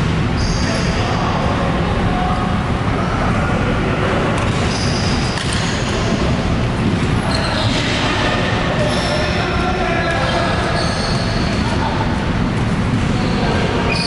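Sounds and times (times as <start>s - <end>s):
sports hall din: 0.0s - 14.0s
shoes squeaking on court floor: 7.2s - 8.0s, 10.0s - 11.6s.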